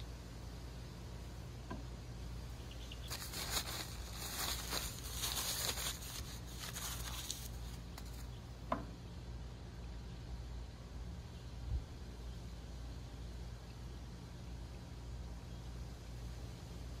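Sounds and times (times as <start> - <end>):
high crackling hiss: 2.5 - 8.4.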